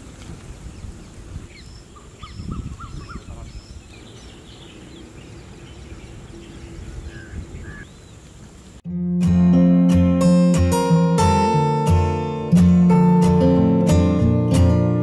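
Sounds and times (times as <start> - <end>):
birds calling and chirping: 0.4 - 8.8.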